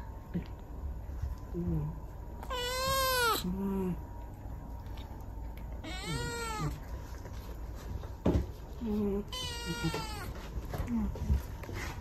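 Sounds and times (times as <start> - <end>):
cat meowing: 2.4 - 3.5, 5.8 - 6.8, 9.3 - 10.4.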